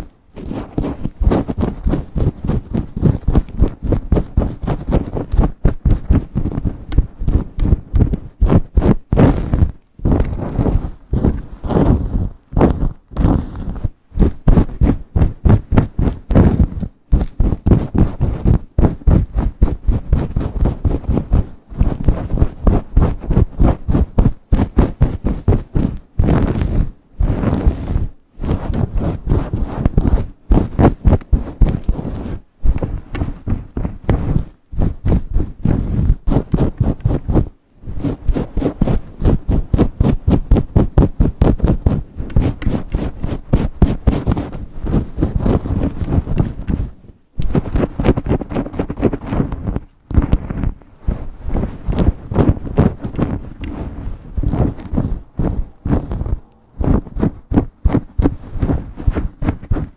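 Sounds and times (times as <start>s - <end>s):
fingernails scratching through hair: 0.0s - 59.9s.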